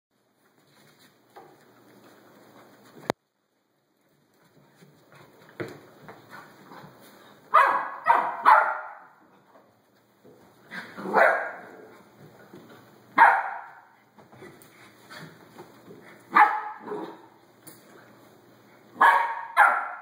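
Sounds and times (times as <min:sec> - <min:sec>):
dogs barking: 0:07.5 - 0:09.2, 0:11.1 - 0:11.7, 0:13.2 - 0:13.9, 0:16.3 - 0:17.3, 0:19.0 - 0:20.0.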